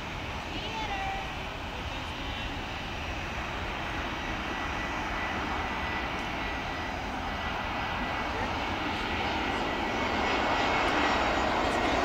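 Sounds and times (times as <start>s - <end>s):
jet airliner engines with whine: 0.0s - 12.0s.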